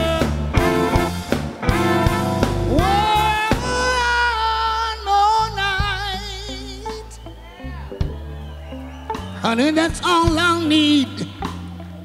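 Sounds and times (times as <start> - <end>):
man singing: 0.0 - 0.9, 2.7 - 7.4, 9.4 - 11.9
live soul band playing: 0.0 - 12.0.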